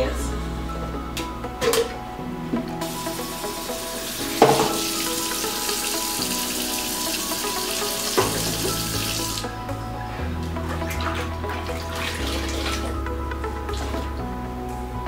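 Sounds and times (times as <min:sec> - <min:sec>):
faucet water into metal sink: 0:02.8 - 0:09.6
pan knocking in sink: 0:04.3 - 0:05.0, 0:08.2 - 0:08.8.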